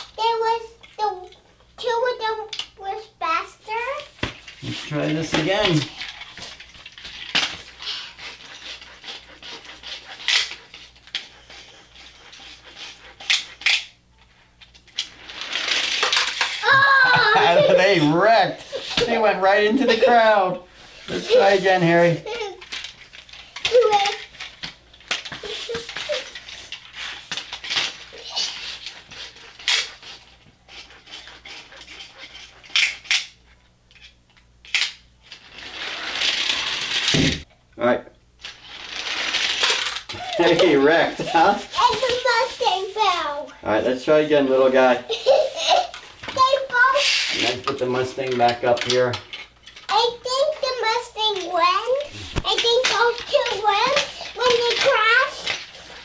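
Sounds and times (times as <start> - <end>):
toy car wheels rasping: 5.7 - 13.9, 15.0 - 17.8, 21.0 - 24.5, 25.1 - 33.3, 35.3 - 37.2, 38.4 - 43.5, 45.1 - 47.6, 48.3 - 56.0.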